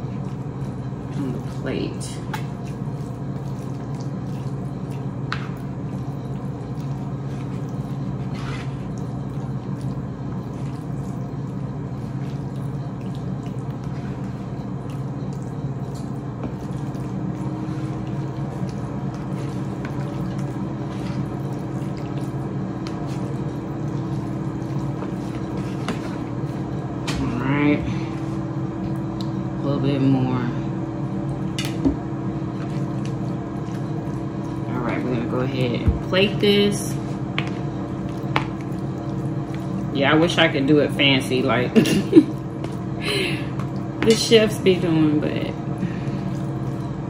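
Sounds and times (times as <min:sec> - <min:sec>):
wet squishing of spaghetti: 0:00.0 - 0:27.1, 0:32.5 - 0:34.8, 0:37.0 - 0:40.0, 0:45.8 - 0:47.0
steady low hum: 0:00.0 - 0:47.0.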